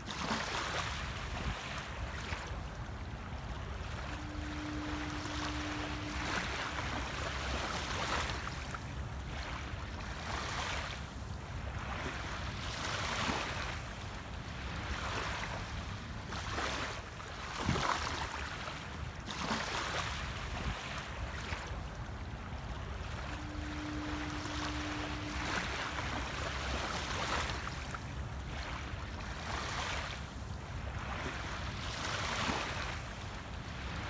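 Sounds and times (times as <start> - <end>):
small waves lapping on beach: 0.0 - 34.0
low steady rumble: 0.8 - 19.2, 20.2 - 34.0
steady low tone: 1.0 - 10.3, 20.2 - 32.1.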